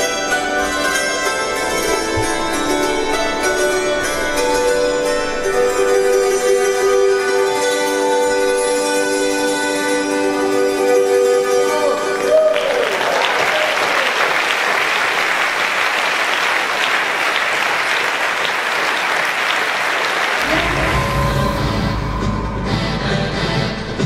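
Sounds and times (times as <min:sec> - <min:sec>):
music ending on held chord: 0:00.2 - 0:10.5
audience applauding: 0:12.0 - 0:22.0.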